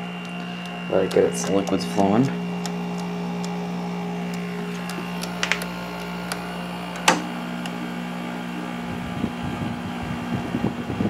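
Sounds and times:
air conditioner hum: 0:00.0 - 0:11.0
sharp clicks: 0:00.2 - 0:03.6, 0:04.2 - 0:07.8
air buffeting microphone: 0:08.6 - 0:11.0.

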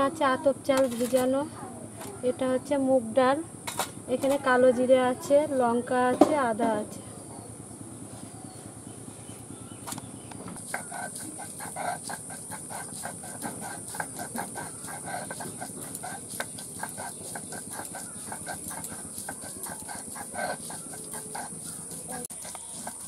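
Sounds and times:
stone roller grinding on slab: 0:00.8 - 0:01.4, 0:10.5 - 0:23.0.

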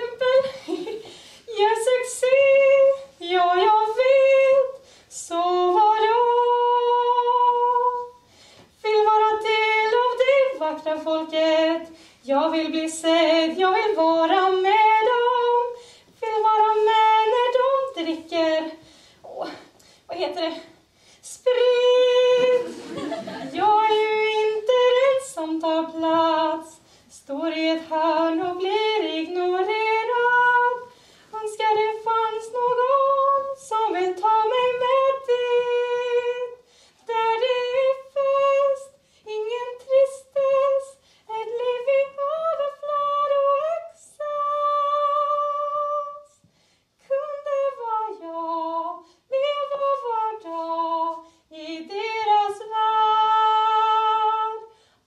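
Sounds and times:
woman singing unaccompanied: 0:00.0 - 0:46.4, 0:47.0 - 0:54.8.

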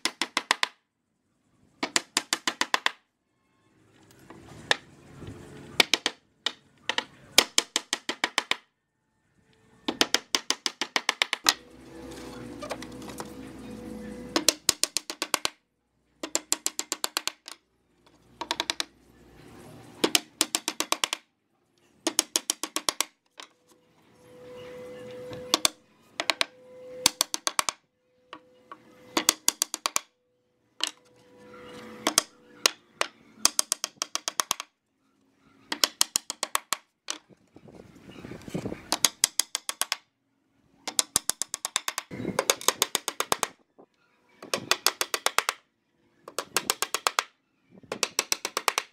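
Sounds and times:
hammer driving nails into wood: 0:00.0 - 0:00.8, 0:01.8 - 0:03.0, 0:05.8 - 0:08.7, 0:09.9 - 0:11.6, 0:14.3 - 0:15.6, 0:16.2 - 0:17.6, 0:18.4 - 0:18.9, 0:20.0 - 0:21.3, 0:22.0 - 0:23.5, 0:25.3 - 0:27.8, 0:29.1 - 0:30.1, 0:32.0 - 0:34.7, 0:35.7 - 0:37.2, 0:38.9 - 0:40.1, 0:40.9 - 0:43.6, 0:44.4 - 0:45.6, 0:46.3 - 0:47.3, 0:47.9 - 0:48.9.

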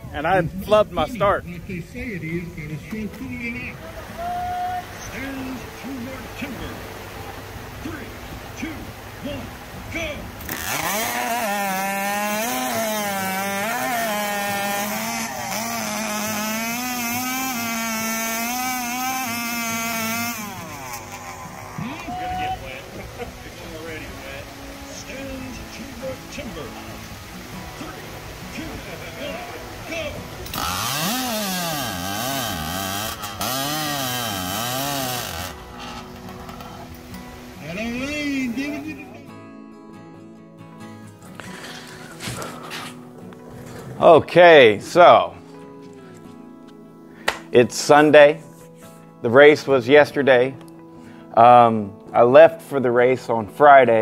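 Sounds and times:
chainsaw cutting through log: 0:10.3 - 0:37.8, 0:41.4 - 0:43.0.

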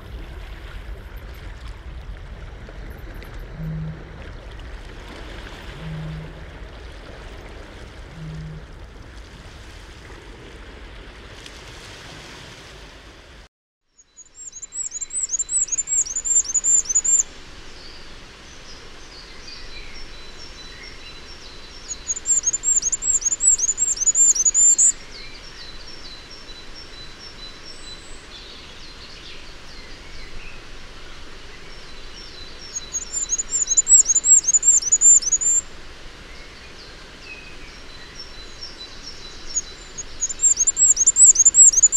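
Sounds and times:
bird singing high thin phrases: 0:14.0 - 0:18.0, 0:21.8 - 0:25.6, 0:32.2 - 0:35.6, 0:37.3 - 0:41.9
steady background hiss: 0:14.4 - 0:41.9.

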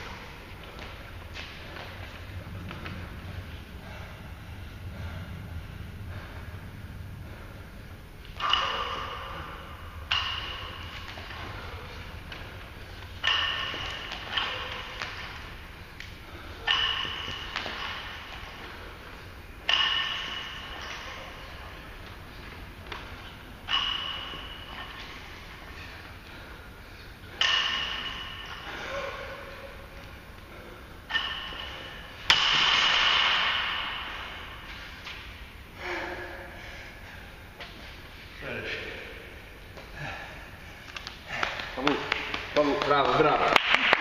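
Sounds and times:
barbell clanking: 0:08.3 - 0:26.6, 0:27.2 - 0:34.9
barbell metallic clank: 0:13.2 - 0:15.2, 0:16.6 - 0:18.5, 0:19.7 - 0:21.4, 0:23.7 - 0:25.2.

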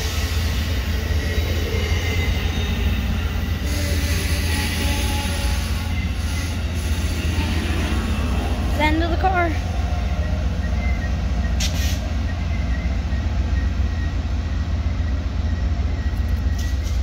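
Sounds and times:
train wheels rumbling on rails: 0:00.0 - 0:17.0
high wheel squeal: 0:00.1 - 0:08.4.

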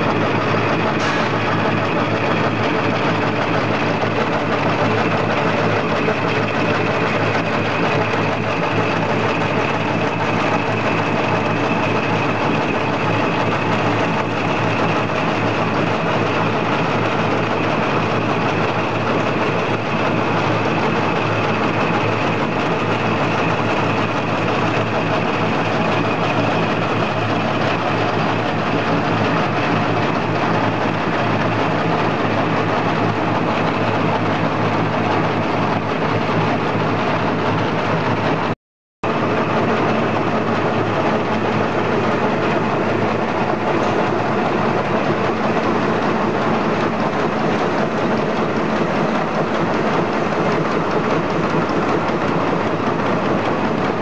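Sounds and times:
napkin making machine running: 0:00.0 - 0:54.0.

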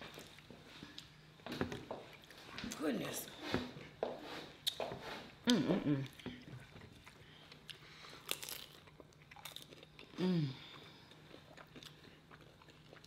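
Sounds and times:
person humming mmm: 0:05.4 - 0:06.2, 0:10.1 - 0:10.8
crunching and chewing pastry: 0:06.0 - 0:13.0.

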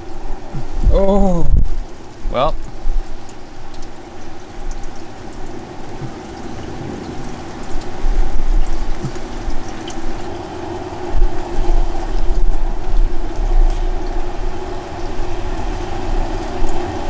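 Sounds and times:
wind rumble on microphone: 0:00.0 - 0:01.9, 0:05.4 - 0:17.0
grill fan rushing hum: 0:00.0 - 0:17.0.

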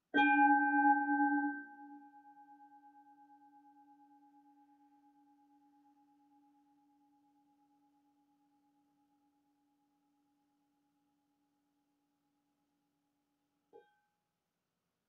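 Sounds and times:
singing bowl ringing: 0:00.2 - 0:02.2.

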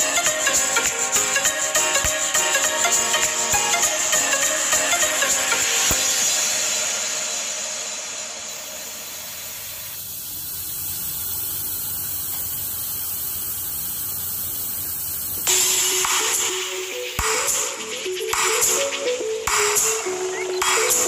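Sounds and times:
music: 0:00.0 - 0:10.0, 0:15.5 - 0:21.0.

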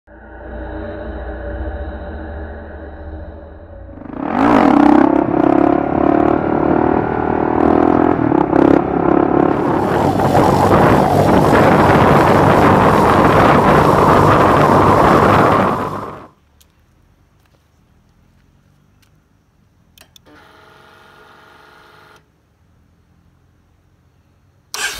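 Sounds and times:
motorcycle engine running: 0:04.3 - 0:16.3
rough hissy engine sound: 0:09.2 - 0:16.3.

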